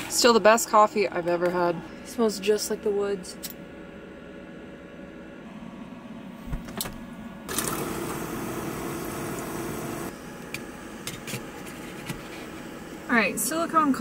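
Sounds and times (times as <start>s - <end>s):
camp stove burner hissing: 7.5s - 14.0s.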